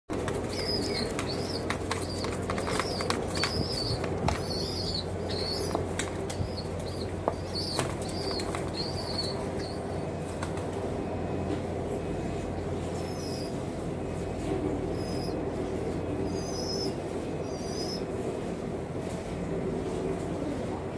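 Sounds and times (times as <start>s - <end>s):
pigeons flapping wings: 0.1s - 4.7s, 5.4s - 8.9s
steady low hum: 0.1s - 20.9s.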